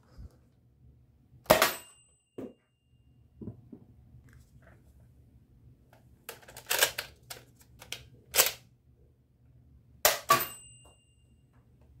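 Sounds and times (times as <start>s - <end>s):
disc striking target: 1.5s - 2.0s
plastic clicks and rattles: 6.3s - 8.6s.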